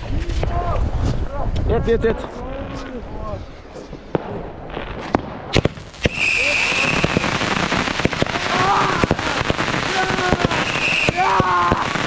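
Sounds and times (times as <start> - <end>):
firework bangs: 4.1 - 12.0
crackle and hiss of sparks: 5.0 - 12.0
high firework whistle: 5.6 - 7.6, 10.1 - 12.0.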